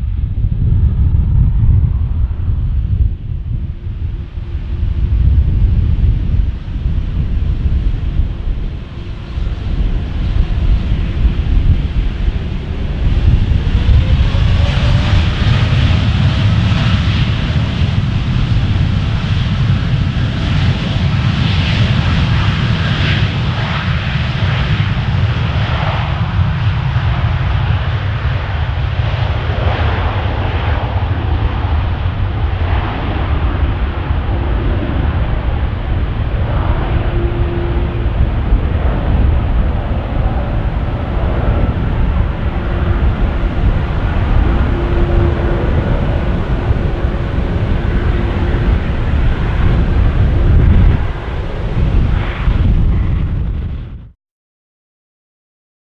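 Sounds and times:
rising engine whine: 0.0s - 20.1s, 29.4s - 54.0s
jet engines rumbling: 0.0s - 54.2s.

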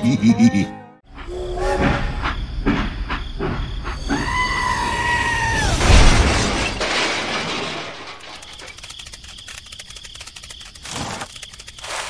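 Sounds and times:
loud crash: 5.4s - 8.6s.

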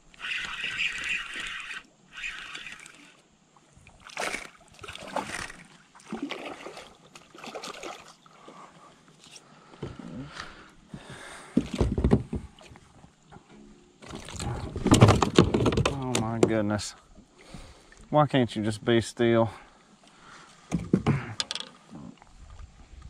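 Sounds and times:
fishing reel being cranked: 0.1s - 3.2s, 4.2s - 5.7s.

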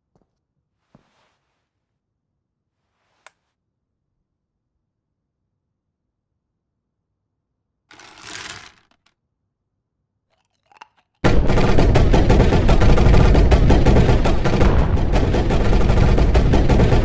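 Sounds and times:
soft rustle: 0.5s - 3.6s
rapid clatter of sharp strikes: 11.2s - 17.0s.

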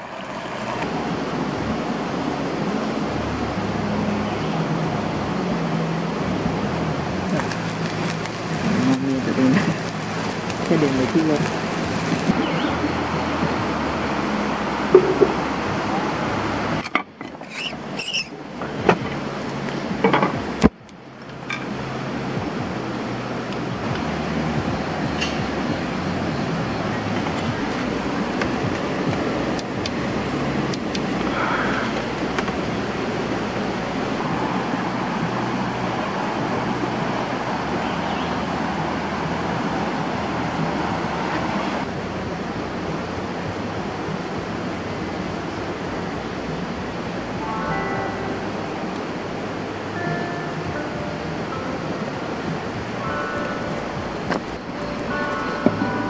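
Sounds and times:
stream water rushing: 0.0s - 3.7s, 5.4s - 16.8s
stream water running: 7.1s - 12.4s.

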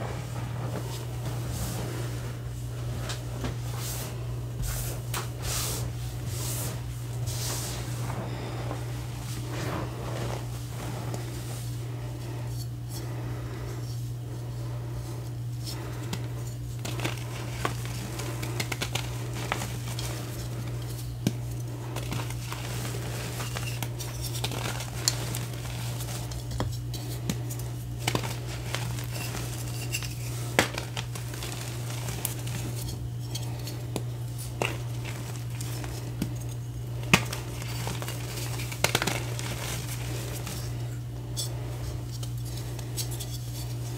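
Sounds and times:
steady low hum: 0.0s - 43.9s
chalk crunching in hands: 16.8s - 36.4s
chalk chunks cracking: 16.8s - 40.8s.

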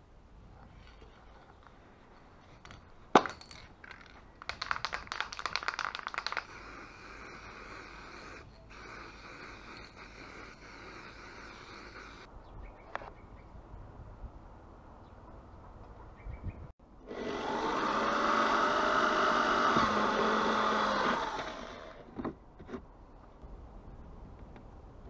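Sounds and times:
steady hiss: 5.8s - 12.3s.

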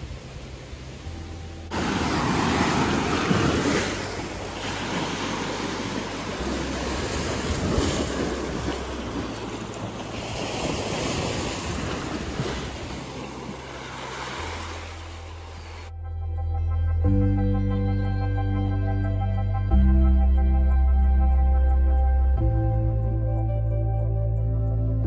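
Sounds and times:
wind buffeting microphone: 0.0s - 15.9s
waves washing onto gravel: 1.7s - 15.8s.

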